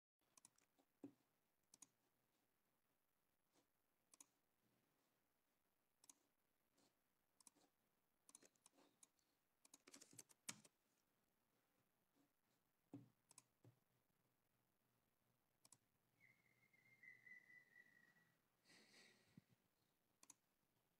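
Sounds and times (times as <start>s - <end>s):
faint clicks: 15.6s - 15.8s.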